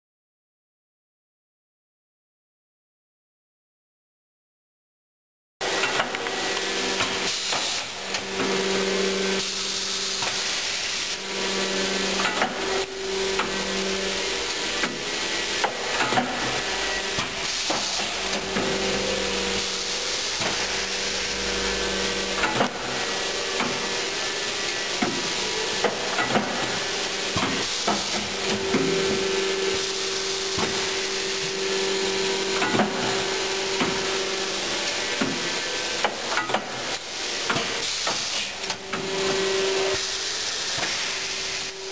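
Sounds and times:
machine hum: 0:05.6 - 0:37.5
banding machine hissing: 0:05.6 - 0:41.9.

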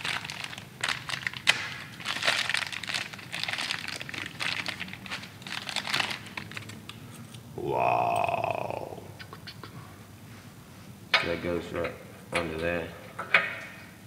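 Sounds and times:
plastic packaging crinkling: 0:00.0 - 0:06.8.

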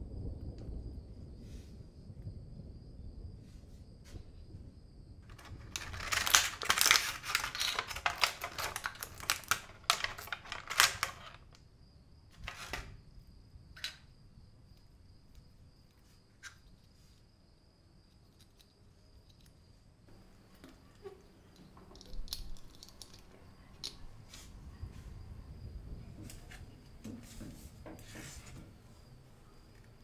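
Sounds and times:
small plastic and metal parts clattering: 0:05.2 - 0:11.6, 0:12.4 - 0:12.9, 0:20.6 - 0:24.1.

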